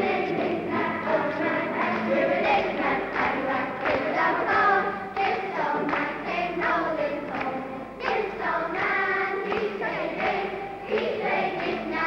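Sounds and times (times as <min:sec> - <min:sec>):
children singing in chorus: 0:00.0 - 0:12.0.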